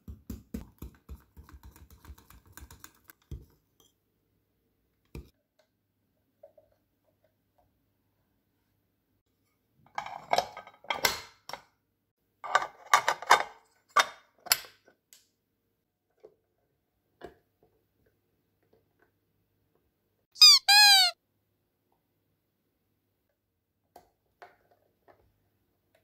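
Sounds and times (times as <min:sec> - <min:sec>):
short high squeaks: 0:20.4 - 0:21.2.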